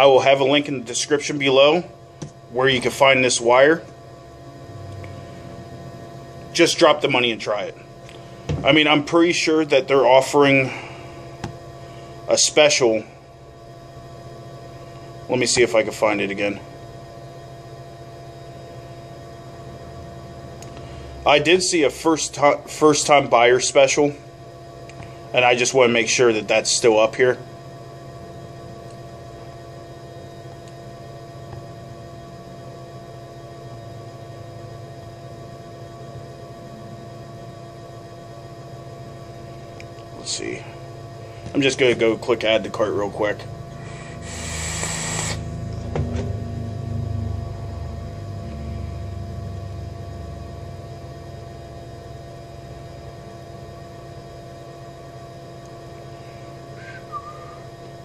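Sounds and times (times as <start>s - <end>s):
steady electrical hum: 0.0s - 58.0s.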